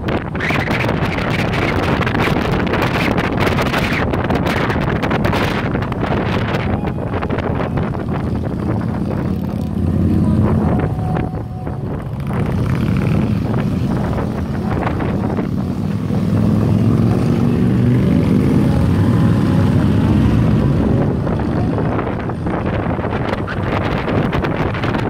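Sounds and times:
wind buffeting microphone: 0.0 - 25.0
motorcycle engine running: 0.8 - 16.8.

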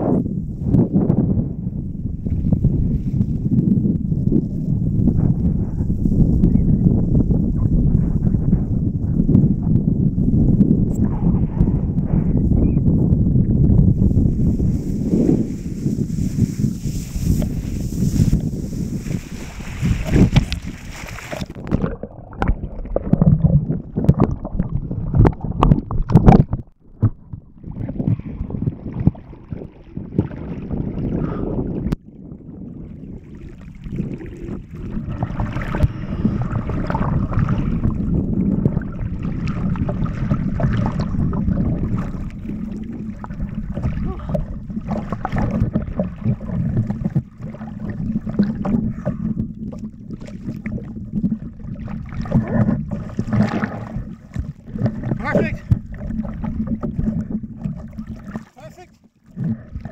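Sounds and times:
underwater gurgling: 0.0 - 59.9
choppy water lapping: 1.5 - 59.9
water splashing and sloshing: 14.0 - 59.9.

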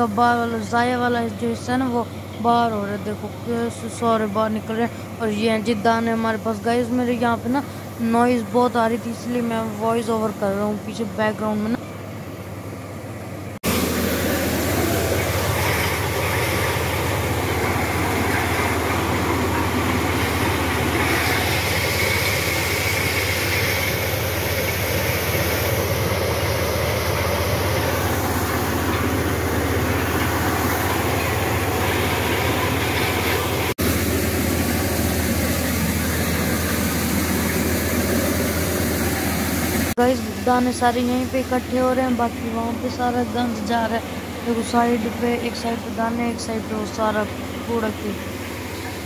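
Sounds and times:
low hum: 0.0 - 49.0
corn sheller running: 13.6 - 49.0.

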